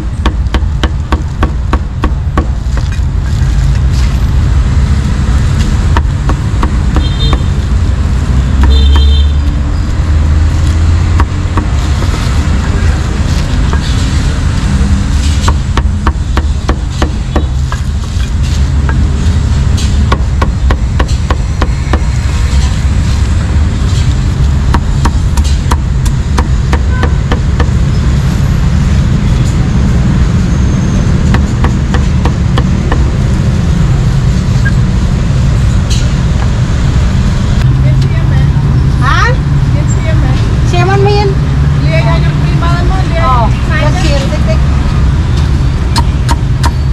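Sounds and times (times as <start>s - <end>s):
steady low rumble: 0.0s - 46.9s
cleaver chopping meat: 5.9s - 7.5s, 20.1s - 22.1s, 31.3s - 33.1s.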